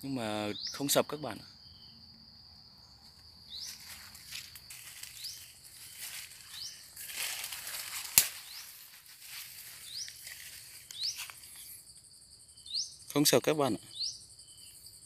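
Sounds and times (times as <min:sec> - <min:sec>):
bird chirping: 0:00.0 - 0:15.0
insects hissing: 0:00.0 - 0:15.0
footsteps through dry leaves: 0:03.6 - 0:11.5
sharp crack: 0:07.2 - 0:09.0.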